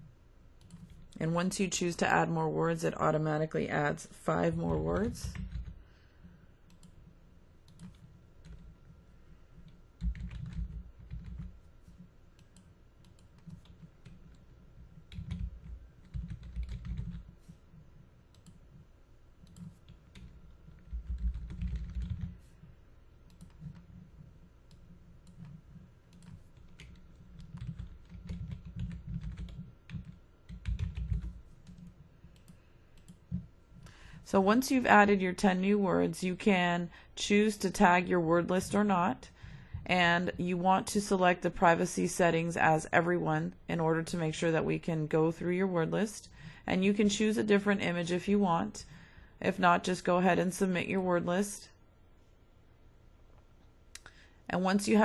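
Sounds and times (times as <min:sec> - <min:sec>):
typing on computer keyboard: 0:00.6 - 0:01.2, 0:04.7 - 0:05.8, 0:06.7 - 0:07.0, 0:07.6 - 0:08.7, 0:09.6 - 0:17.6, 0:19.4 - 0:22.4, 0:23.3 - 0:24.1, 0:24.7 - 0:33.4.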